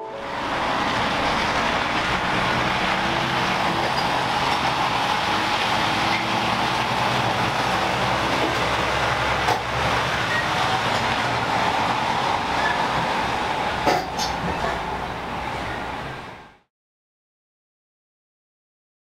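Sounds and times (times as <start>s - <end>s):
lorry engine driving past: 0.0s - 13.8s.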